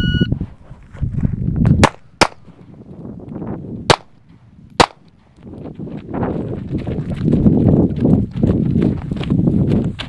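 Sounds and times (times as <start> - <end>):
pistol shots: 1.8 - 2.5, 3.9 - 4.2, 4.8 - 5.0.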